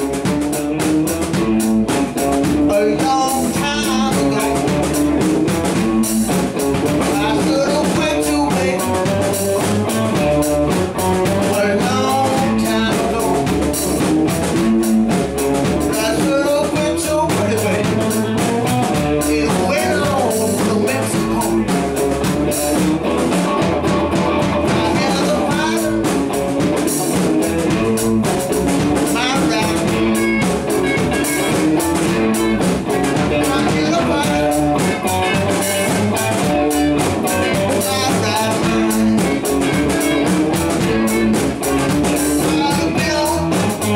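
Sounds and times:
drum kit: 0.0s - 43.9s
electric guitars: 0.0s - 43.9s
lead guitar bending notes: 0.0s - 43.9s.

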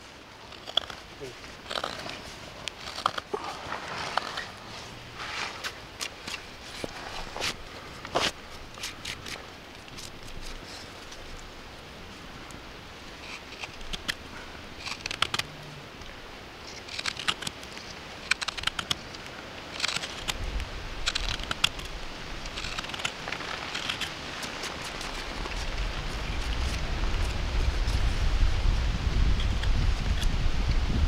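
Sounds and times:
knife scraping wood: 0.5s - 1.0s, 1.6s - 7.6s, 14.8s - 15.5s, 18.2s - 19.0s, 19.7s - 20.4s, 21.0s - 28.1s.

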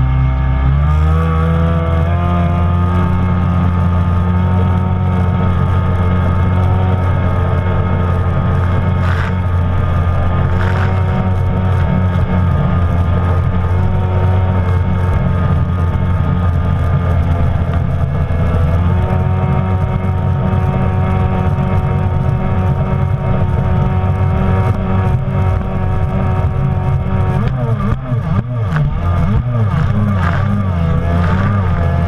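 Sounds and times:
jet ski engine running: 0.0s - 32.0s.

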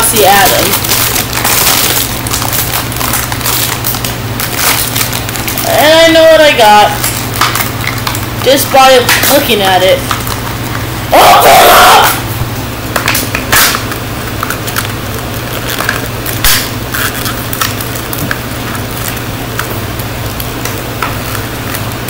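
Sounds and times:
plastic wrapper crinkling: 0.0s - 10.9s, 12.9s - 22.0s
low fan hum: 0.0s - 22.0s.

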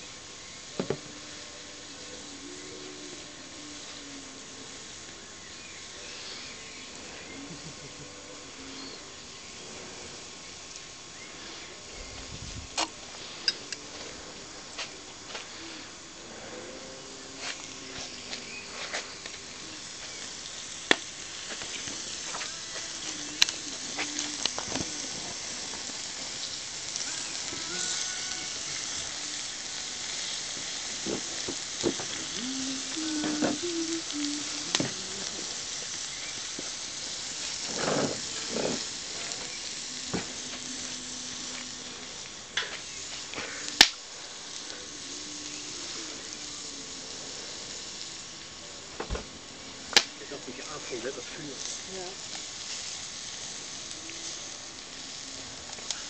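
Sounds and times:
vegetables sizzling in a wok: 0.0s - 56.0s.

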